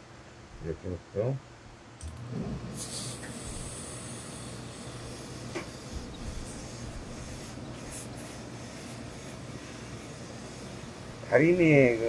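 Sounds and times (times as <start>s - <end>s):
steam press humming and hissing: 2.0s - 12.0s
sharp hiss of steam: 2.7s - 12.0s.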